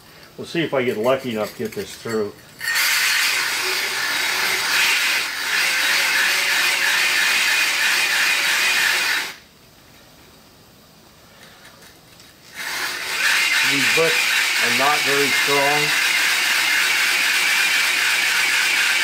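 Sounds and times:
hole saw grinding brick: 0:02.6 - 0:09.4, 0:12.5 - 0:19.0.

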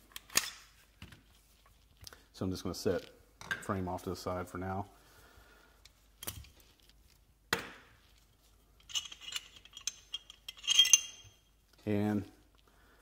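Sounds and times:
ringing metal clinks: 0:08.9 - 0:11.4.

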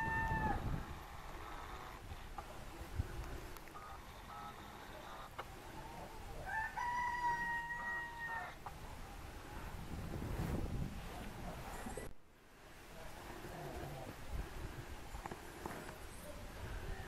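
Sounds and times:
rooster crowing: 0:00.0 - 0:00.9, 0:06.4 - 0:08.6
chicken calls: 0:00.0 - 0:02.6.

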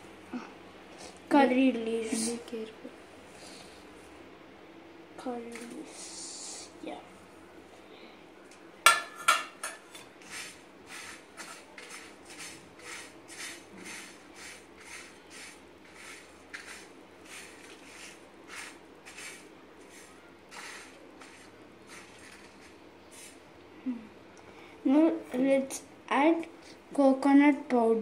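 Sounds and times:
spices scraped on iron pan: 0:08.9 - 0:23.4.

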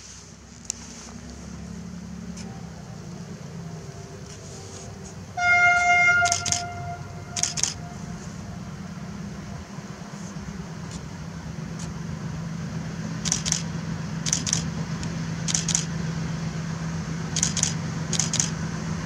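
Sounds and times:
diesel locomotive engine rumble: 0:00.0 - 0:19.0
locomotive horn blast: 0:04.6 - 0:09.4.

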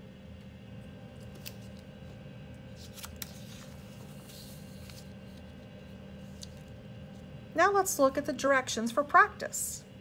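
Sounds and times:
faint steady hum: 0:00.0 - 0:10.0
paper rustling: 0:02.7 - 0:06.7.

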